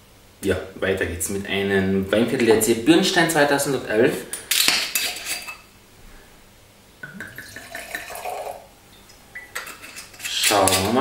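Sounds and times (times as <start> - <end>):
wine pouring into glass: 7.0 - 8.7.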